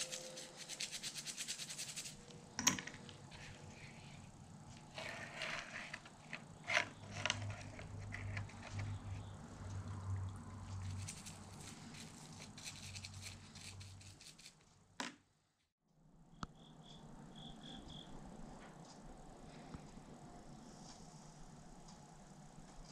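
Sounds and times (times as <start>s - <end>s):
brush scrubbing metal parts: 0.0s - 2.2s, 4.8s - 9.2s, 10.6s - 14.6s.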